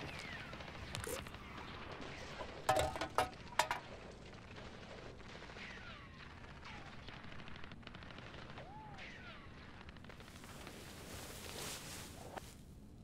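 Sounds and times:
metal can clattering on wooden floor: 2.4s - 3.9s.

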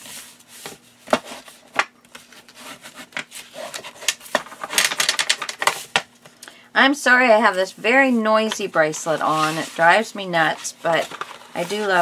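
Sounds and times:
hands rubbing on paper: 8.1s - 11.0s.

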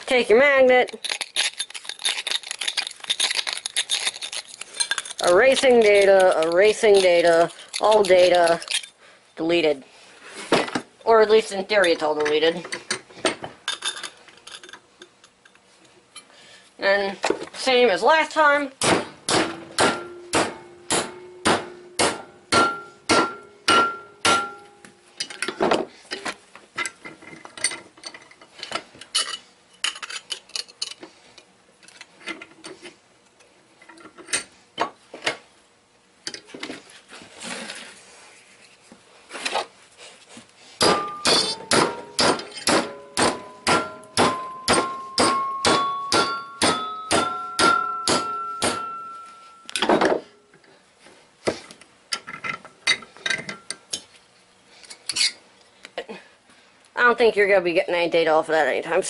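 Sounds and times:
hammer ringing on metal platter: 19.3s - 24.8s, 40.8s - 49.8s.

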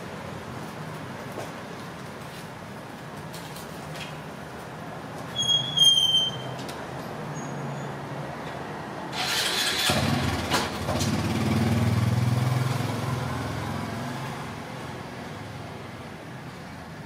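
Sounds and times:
motor vehicle engine: 9.1s - 14.7s.

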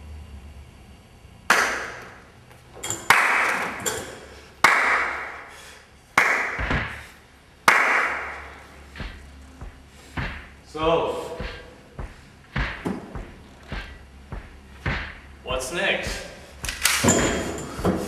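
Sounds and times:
loud echoing strikes: 4.6s - 16.4s.

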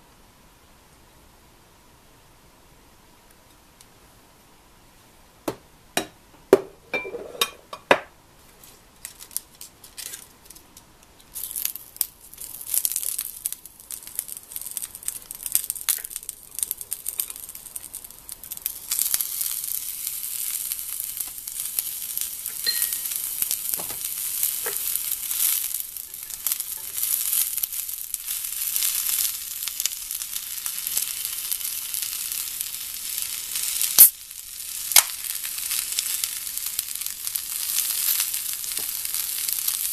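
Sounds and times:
food sizzling in skillet: 11.3s - 39.9s.

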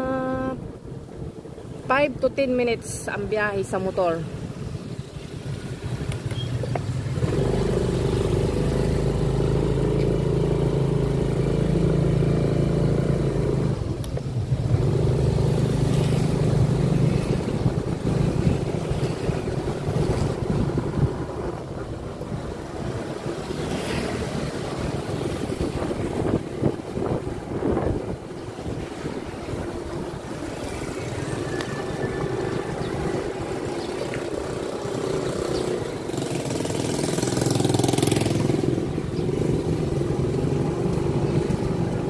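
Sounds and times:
motorcycle engine running: 29.8s - 42.0s.

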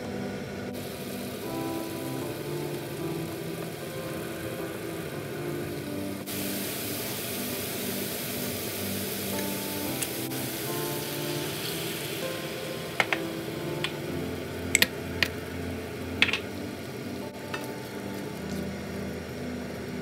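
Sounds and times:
background music: 0.0s - 20.0s
paste sizzling in hot oil: 0.8s - 15.5s.

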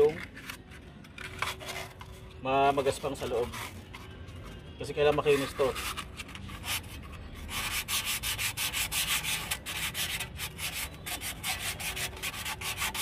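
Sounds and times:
sandpaper scratching inside metal bore: 2.8s - 4.1s, 5.1s - 13.0s.

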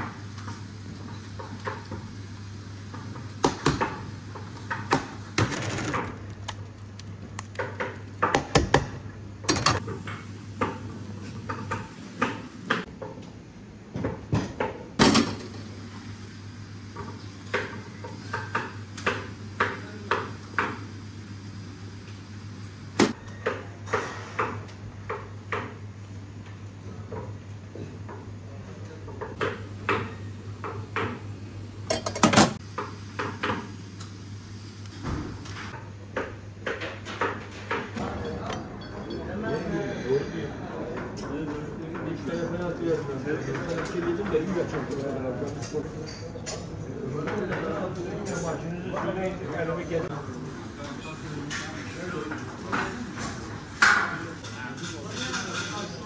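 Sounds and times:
metal bowls and utensils clinking: 31.9s - 32.6s, 37.4s - 39.8s, 50.8s - 56.0s.

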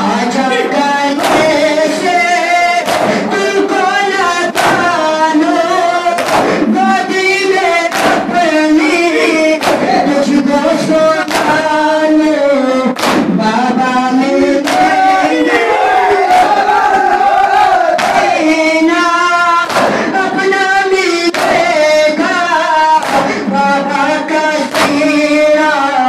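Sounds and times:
men singing a lament: 0.0s - 26.0s
unison chest slaps: 1.2s - 2.0s, 2.8s - 3.3s, 4.6s - 5.1s, 6.2s - 6.7s, 7.9s - 8.5s, 9.6s - 10.0s, 11.3s - 11.7s, 13.0s - 13.4s, 14.6s - 15.0s, 18.0s - 18.4s, 19.6s - 20.2s, 21.3s - 21.8s, 23.0s - 23.4s, 24.7s - 25.2s.

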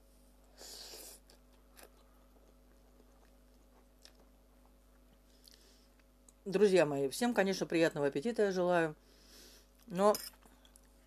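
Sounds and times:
faint chewing of noodles: 0.4s - 6.4s.

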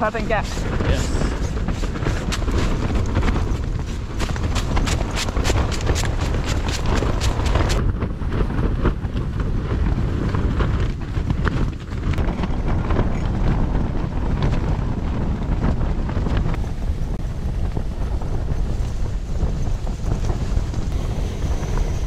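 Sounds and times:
storm wind battering a tent: 0.0s - 22.0s.

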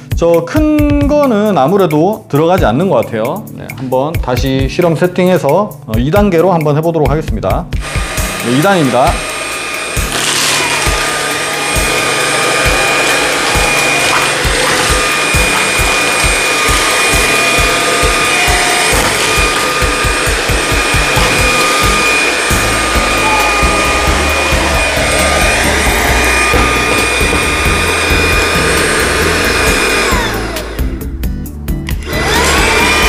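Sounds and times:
suction air rushing: 7.8s - 31.0s
vacuum cleaner motor whine: 7.8s - 31.0s, 32.0s - 33.0s.

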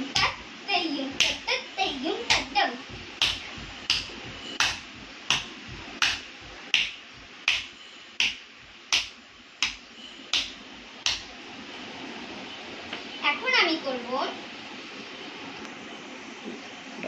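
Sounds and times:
bare feet stamping on tiles: 1.1s - 1.5s, 2.2s - 9.8s, 10.4s - 11.3s.

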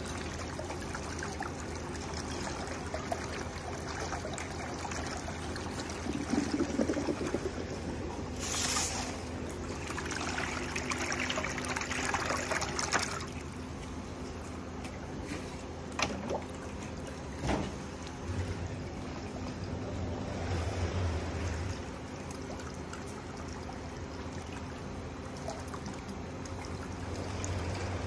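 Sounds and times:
steady low hum: 0.0s - 28.0s
water trickling and splashing: 0.0s - 28.0s
whirlpool jet churning water: 0.0s - 28.0s.

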